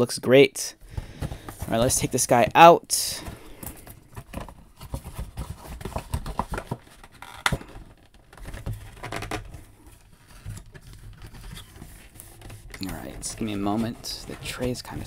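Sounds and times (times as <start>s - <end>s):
cardboard box rustling and scraping: 3.2s - 15.0s.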